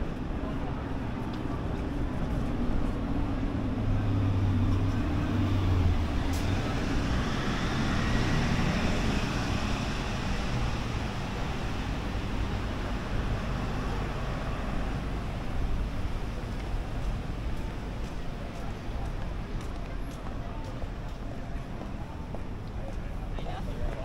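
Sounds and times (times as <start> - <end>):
vehicle engines: 0.0 - 24.0.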